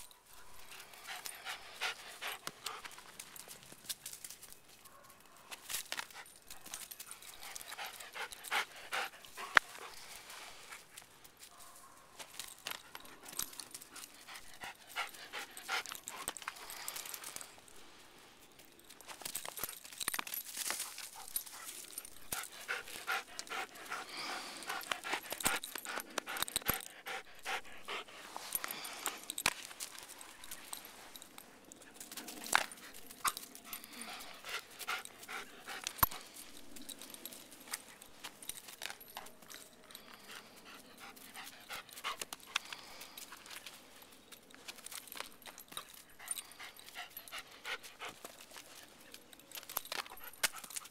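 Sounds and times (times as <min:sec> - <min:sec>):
rustling: 0:00.0 - 0:50.9
dog panting: 0:00.7 - 0:03.5, 0:06.0 - 0:11.1, 0:12.7 - 0:17.4, 0:20.8 - 0:31.2, 0:31.8 - 0:38.0, 0:38.9 - 0:43.6, 0:45.8 - 0:49.2.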